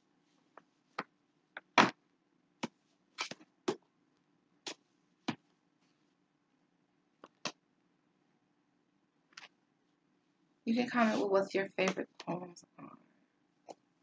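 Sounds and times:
books tapping and knocking: 0:02.6 - 0:03.9.

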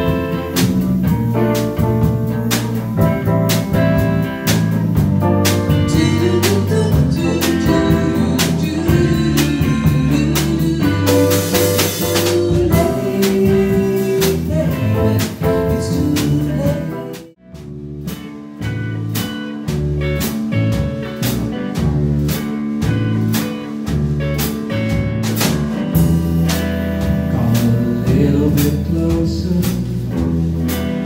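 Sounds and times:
drum kit: 0:00.0 - 0:31.0
electric guitar: 0:00.0 - 0:31.0
person singing: 0:05.7 - 0:17.4, 0:27.3 - 0:30.4.

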